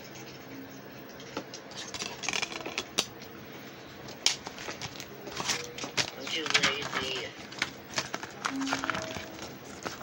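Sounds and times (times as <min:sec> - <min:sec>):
disc case rustling: 0:04.2 - 0:10.0.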